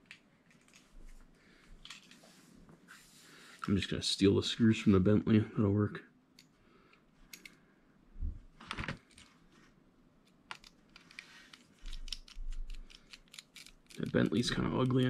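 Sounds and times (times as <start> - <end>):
screwdriver clicks: 11.8 - 14.0.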